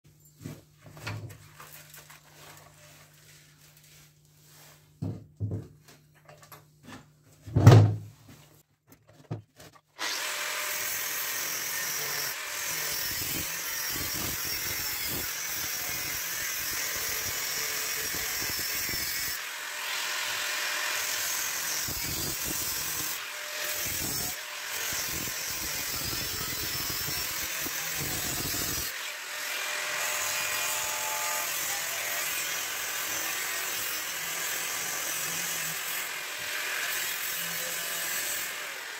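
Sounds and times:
power tool cutting metal: 0:10.0 - 0:38.9.

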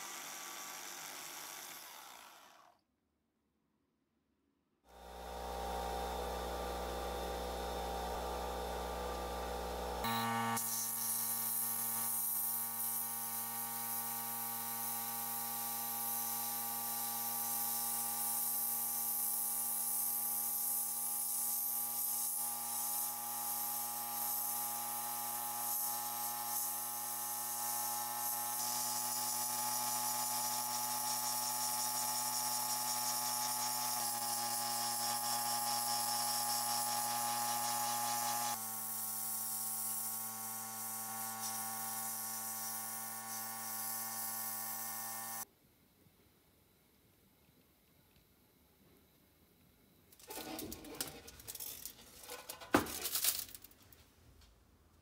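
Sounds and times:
sandblasting hiss: 0:10.2 - 0:45.4.

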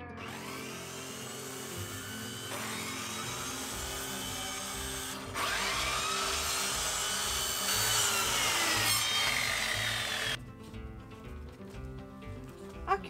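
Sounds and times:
circular saw cutting cardboard: 0:00.2 - 0:10.4.

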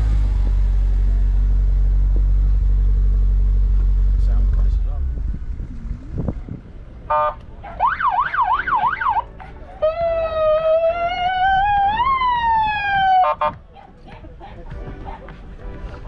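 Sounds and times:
emergency vehicle siren: 0:07.8 - 0:13.5.

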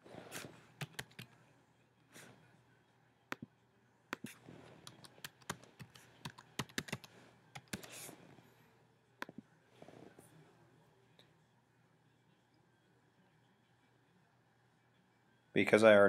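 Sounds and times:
keyboard typing: 0:00.8 - 0:01.3, 0:04.1 - 0:08.1.

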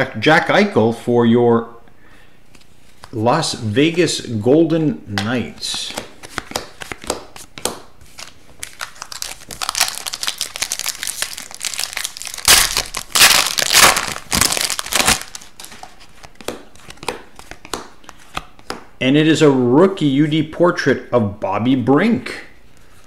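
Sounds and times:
cards flicked and sliding: 0:05.2 - 0:09.0
foil wrapper tearing and crinkling: 0:08.2 - 0:15.9.

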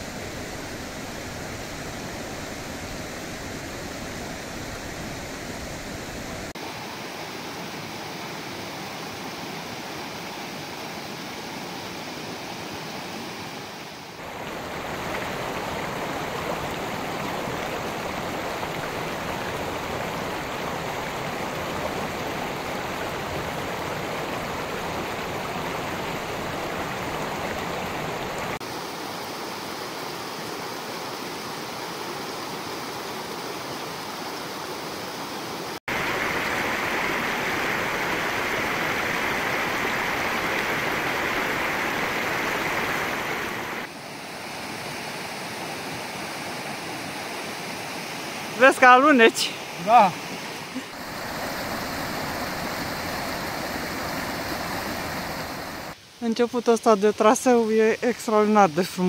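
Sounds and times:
stream rushing: 0:00.0 - 0:59.0.

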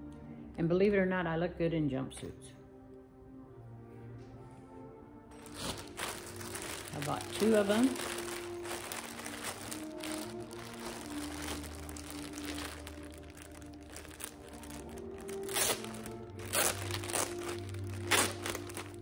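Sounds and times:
soft background music: 0:00.0 - 0:19.0
plastic bag crinkling: 0:05.4 - 0:19.0.

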